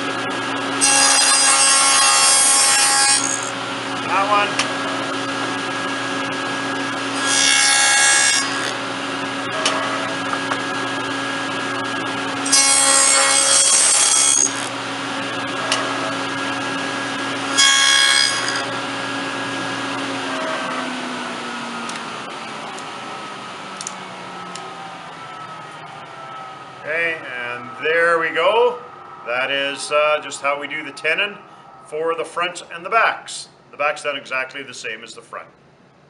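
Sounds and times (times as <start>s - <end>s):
table saw motor humming: 0.0s - 29.2s
saw blade rasping through wood: 0.8s - 5.2s, 7.0s - 8.8s, 12.4s - 14.8s, 15.5s - 18.9s.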